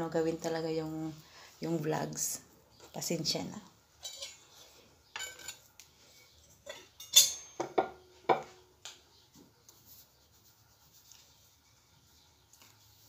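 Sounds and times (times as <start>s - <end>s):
hands knocking on ceramic plate: 7.6s - 8.5s.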